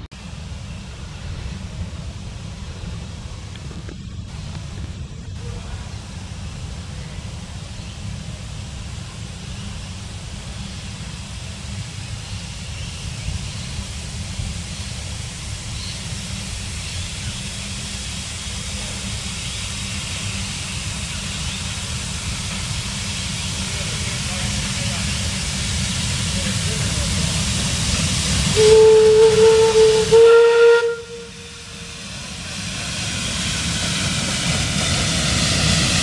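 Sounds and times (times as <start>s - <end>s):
steam locomotive hiss: 0.0s - 36.0s
wind rumble on microphone: 1.2s - 5.6s.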